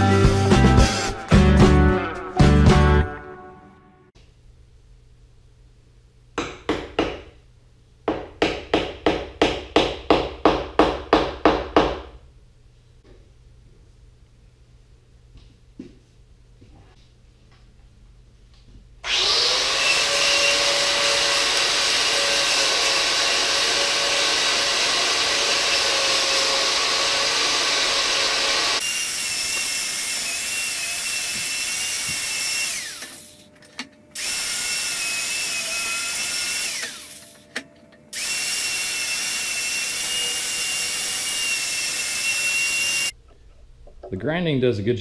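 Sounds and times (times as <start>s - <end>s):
angle grinder grinding wood: 19.0s - 33.5s, 34.2s - 37.5s, 38.1s - 43.2s.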